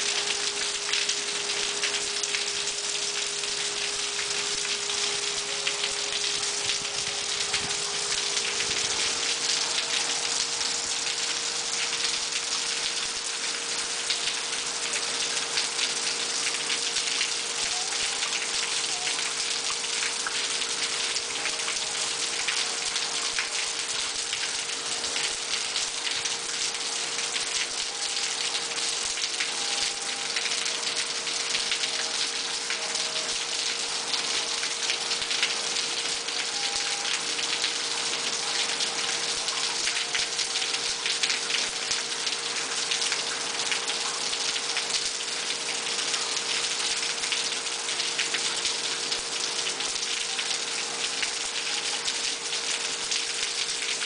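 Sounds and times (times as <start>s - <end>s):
heavy rain on concrete: 0.0s - 54.0s.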